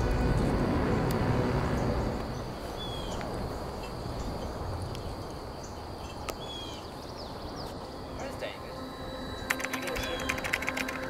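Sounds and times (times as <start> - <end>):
wind rumble: 0.0 - 11.0
high bird chirp: 2.3 - 3.2, 5.6 - 11.0.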